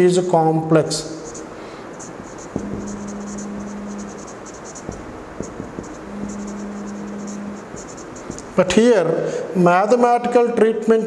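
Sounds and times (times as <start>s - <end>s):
marker scratching on whiteboard: 1.2s - 8.8s
marker tip ticks: 1.3s - 8.7s
low steady hum: 1.4s - 8.7s.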